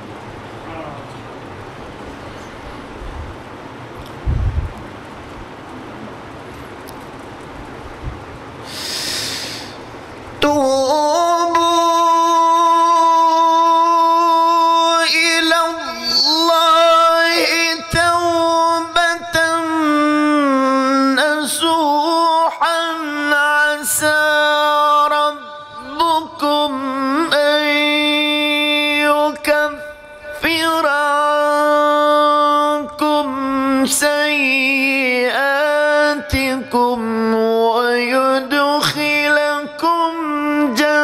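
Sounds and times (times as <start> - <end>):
breathy hiss: 8.6 - 10.0
man reciting melodically: 10.4 - 41.0.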